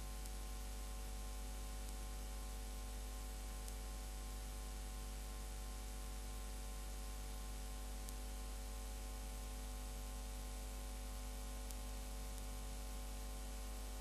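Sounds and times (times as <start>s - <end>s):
faint ticks: 0.0s - 0.7s, 1.7s - 2.2s, 3.2s - 4.5s, 7.2s - 8.3s, 11.3s - 12.7s
low electrical hum: 0.0s - 14.0s
steady hiss: 0.0s - 14.0s.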